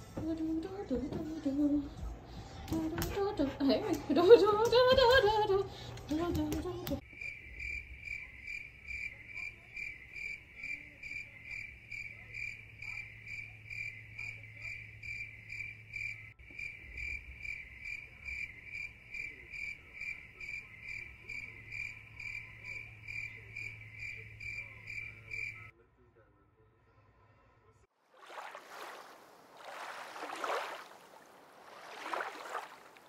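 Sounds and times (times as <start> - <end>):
cricket chirping: 7.0 - 25.7.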